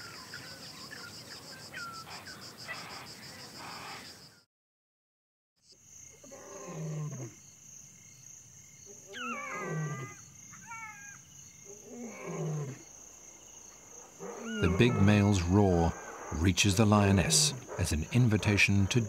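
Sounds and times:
crickets chirring: 0:00.0 - 0:04.4, 0:05.6 - 0:19.0
lion roaring: 0:09.2 - 0:10.2, 0:11.8 - 0:12.8, 0:14.1 - 0:18.2.

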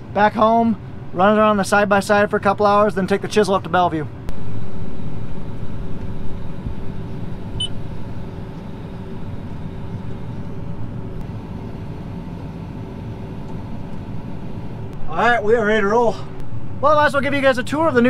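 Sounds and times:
tractor diesel engine rumble: 0:00.0 - 0:18.0
hydraulic whine: 0:04.3 - 0:15.1.

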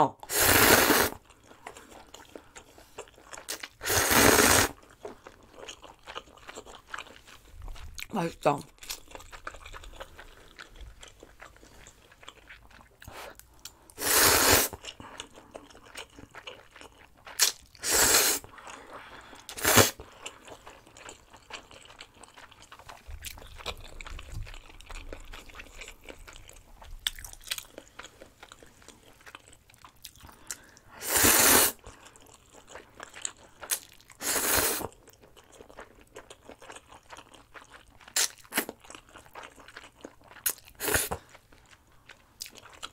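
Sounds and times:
slurping noodles: 0:00.3 - 0:01.2, 0:03.4 - 0:04.8, 0:14.0 - 0:14.8, 0:17.4 - 0:18.5, 0:19.5 - 0:20.0, 0:31.0 - 0:31.8, 0:34.2 - 0:35.0
chewing and mouth sounds: 0:01.2 - 0:03.8, 0:04.7 - 0:14.0, 0:14.7 - 0:17.8, 0:18.4 - 0:31.0, 0:31.7 - 0:42.9.

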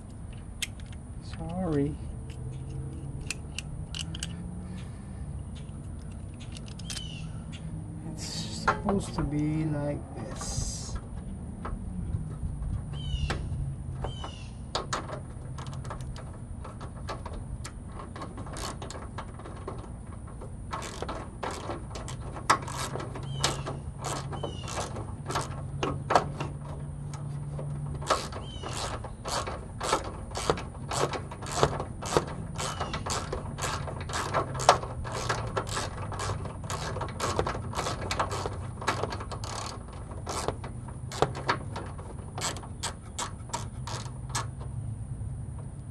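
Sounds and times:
hand ratchet clicking: 0:14.1 - 0:44.6.

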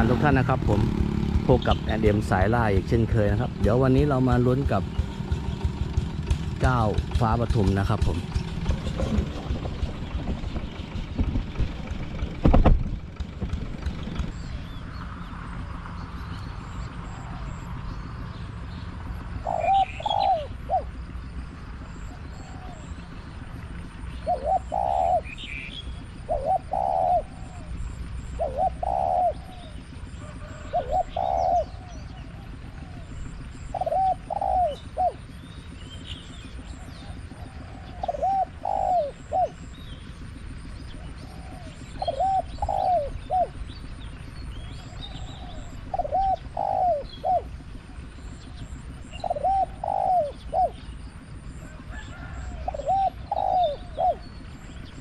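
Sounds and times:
dove cooing: 0:00.0 - 0:06.4, 0:16.6 - 0:17.9, 0:18.9 - 0:55.0.

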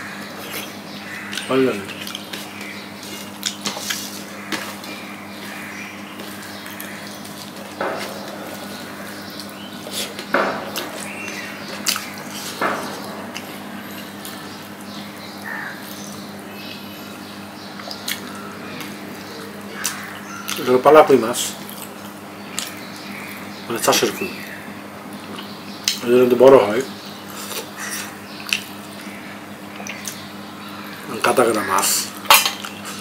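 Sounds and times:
chewing and wet smacks: 0:00.6 - 0:05.6, 0:06.2 - 0:14.6, 0:17.8 - 0:19.0, 0:19.7 - 0:20.7, 0:21.6 - 0:23.4, 0:25.2 - 0:26.0, 0:27.3 - 0:30.3, 0:32.2 - 0:33.0.

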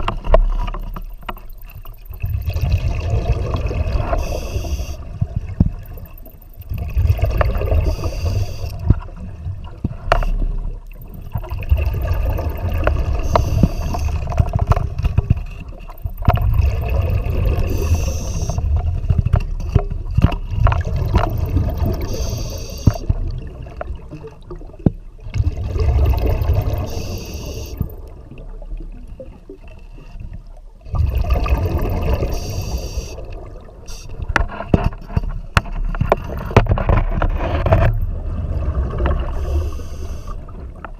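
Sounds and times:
exhaled bubbles rumbling: 0:00.0 - 0:40.9
regulator hissing inhalations: 0:04.2 - 0:05.0, 0:07.8 - 0:08.8, 0:13.2 - 0:14.2, 0:17.7 - 0:18.6, 0:22.0 - 0:23.0, 0:26.9 - 0:27.8, 0:32.3 - 0:33.2, 0:39.4 - 0:40.4.

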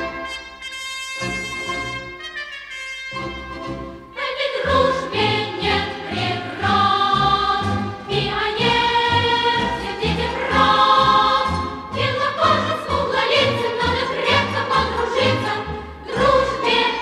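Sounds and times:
choir singing long notes: 0:04.1 - 0:17.0.

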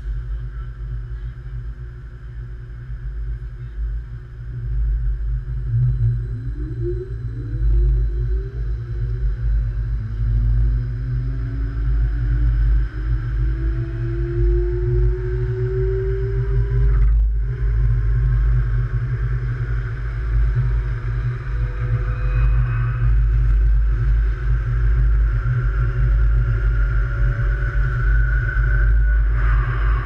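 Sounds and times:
light rail train electric whine: 0:14.8 - 0:30.0.

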